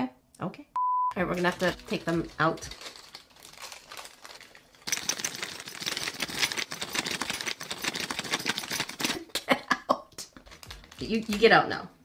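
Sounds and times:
metal ring rattling in plastic bag: 1.2 - 9.2, 10.4 - 11.6.

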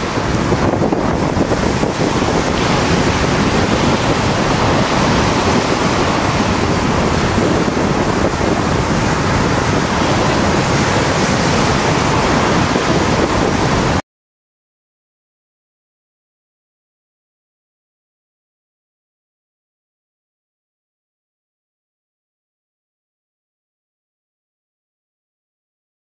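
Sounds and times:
surf rushing on rocks: 0.0 - 14.0
wind rumble on microphone: 0.0 - 14.0.

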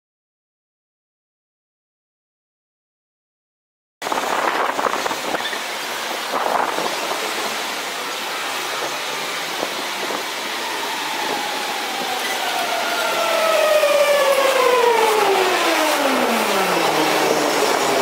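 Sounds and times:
train whine falling in pitch: 10.0 - 18.0.

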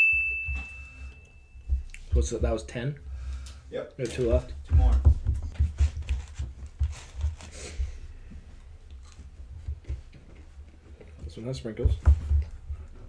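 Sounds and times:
chewing: 8.8 - 9.3.

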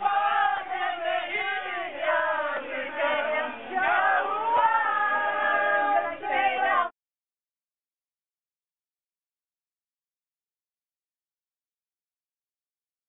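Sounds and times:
group singing together: 0.0 - 6.9.

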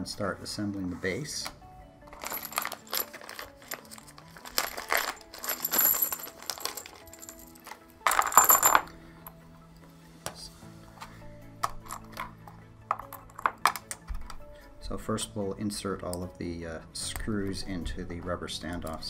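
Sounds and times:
metal screws rattling in plastic bag: 2.1 - 8.9.

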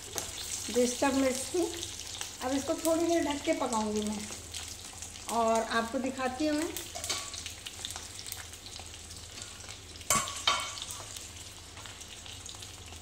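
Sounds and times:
chillies sizzling in hot oil: 0.0 - 13.0.

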